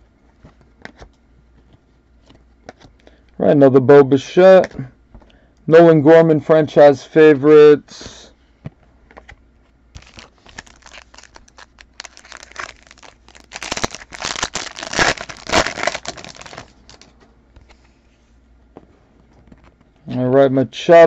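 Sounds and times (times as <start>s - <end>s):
faint rustles and taps: 0.3s - 3.0s
wrapper tearing and crinkling: 10.0s - 17.1s.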